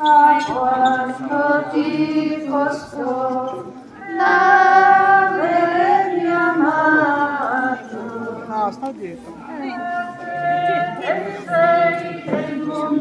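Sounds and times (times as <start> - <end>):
women singing a hymn: 0.0 - 8.8, 9.4 - 13.0.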